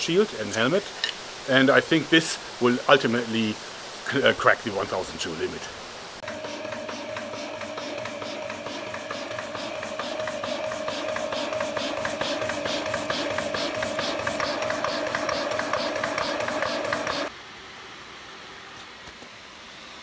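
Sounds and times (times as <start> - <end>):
air compressor running: 6.2 - 17.3.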